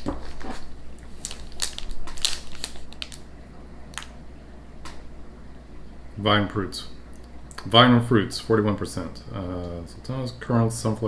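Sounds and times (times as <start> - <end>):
plastic wrapper crinkling: 0.0 - 3.3, 3.9 - 4.2.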